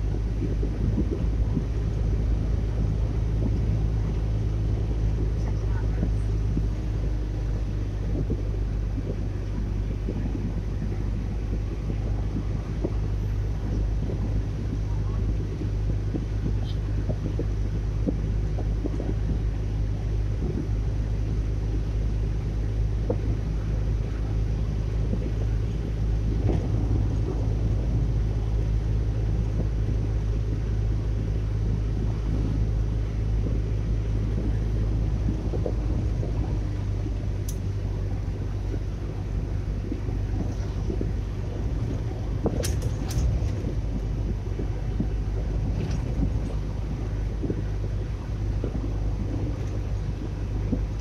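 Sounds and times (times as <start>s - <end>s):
car engine and road rumble: 0.0s - 51.0s
sharp click: 42.5s - 43.4s.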